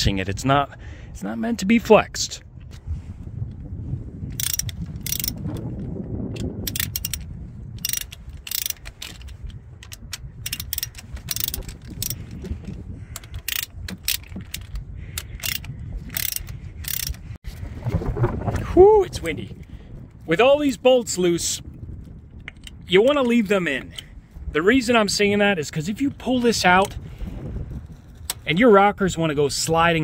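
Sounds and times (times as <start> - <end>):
wind rumbling on microphone: 0.0 - 30.0
socket ratchet clicking: 4.3 - 5.7, 6.3 - 12.4, 13.2 - 17.2.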